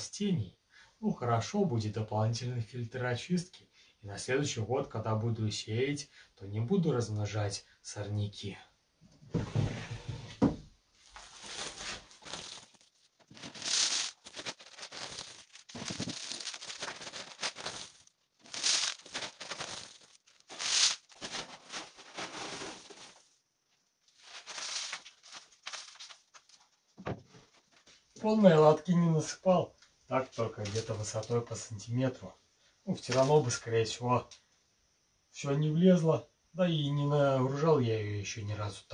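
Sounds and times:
grain rustling and pattering: 11.0s - 23.3s, 24.1s - 26.8s.

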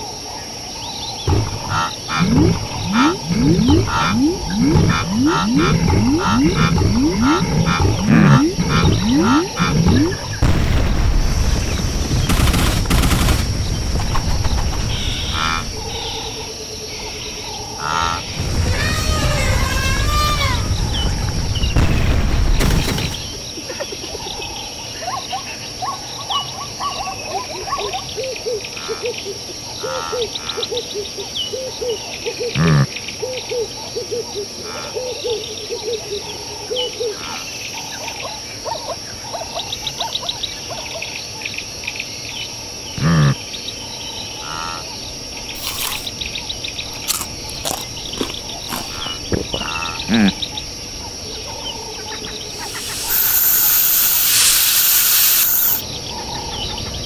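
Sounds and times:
low croaking calls: 0.0s - 10.7s, 11.5s - 21.9s, 23.0s - 41.0s, 42.8s - 57.0s
insect drone: 0.0s - 57.0s
birds chirping: 0.7s - 19.5s, 42.4s - 57.0s.

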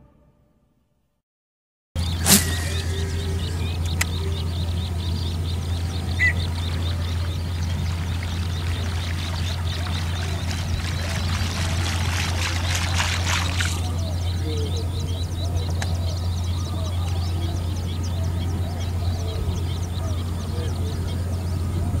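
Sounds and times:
water splashing and trickling: 2.0s - 16.5s
steady low rumble: 2.0s - 22.0s
brief chirp: 2.2s - 4.4s
crackling splashes: 5.3s - 14.4s.

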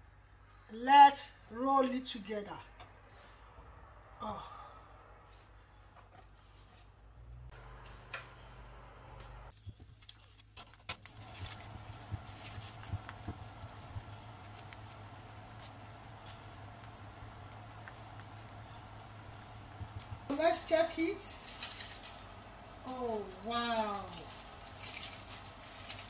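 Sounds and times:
steady low hum: 2.6s - 9.8s, 11.1s - 26.0s
aluminium foil crinkling: 9.5s - 26.0s.

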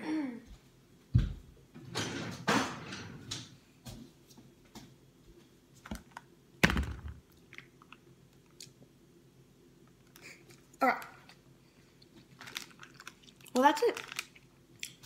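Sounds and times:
faint crunching of snack: 10.0s - 15.0s.

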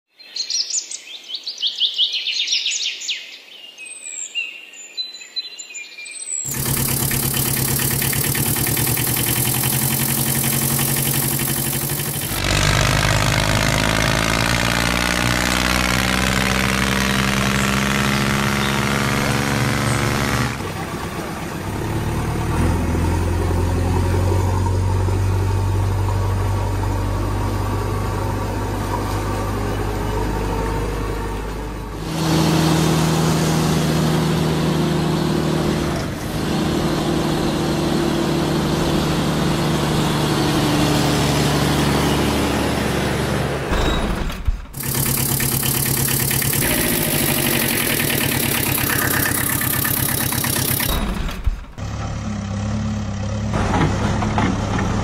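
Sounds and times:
engine drone: 6.5s - 55.0s.

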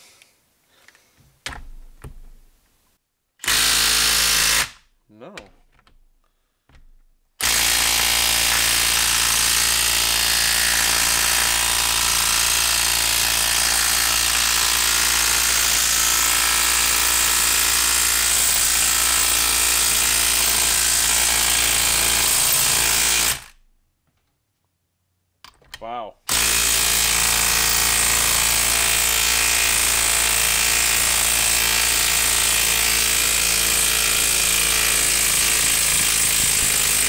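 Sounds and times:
impact wrench hammering: 6.7s - 23.5s, 26.3s - 37.0s.

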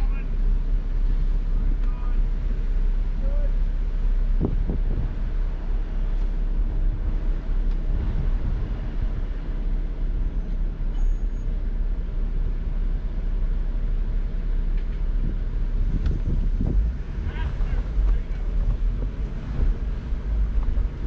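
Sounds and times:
engines rumbling at low revs: 0.0s - 21.0s.

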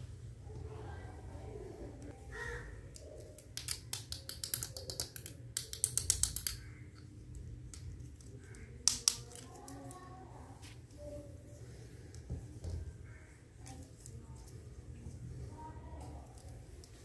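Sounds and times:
plastic toy utensils clicking: 2.9s - 7.1s, 7.7s - 10.0s.

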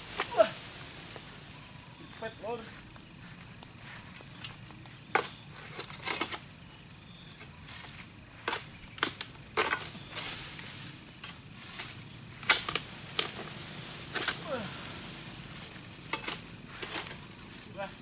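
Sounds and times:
insects droning: 0.0s - 18.0s
pole knocking among palm fronds: 4.4s - 6.5s, 7.4s - 17.8s.

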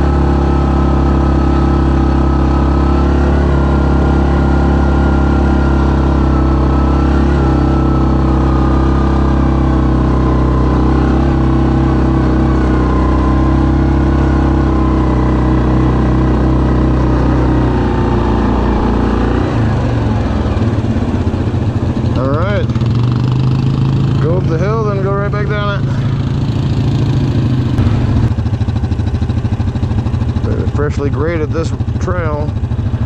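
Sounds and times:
atv engine running: 0.0s - 33.0s.

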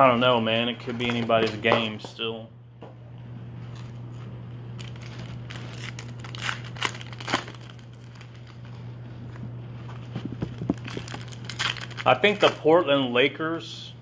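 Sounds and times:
steady low hum: 0.0s - 14.0s
wrapper crinkling and tearing: 4.7s - 12.8s.

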